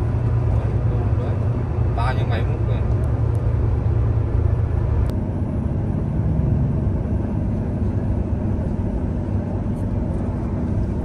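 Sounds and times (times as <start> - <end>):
diesel machinery rumbling: 0.0 - 11.0.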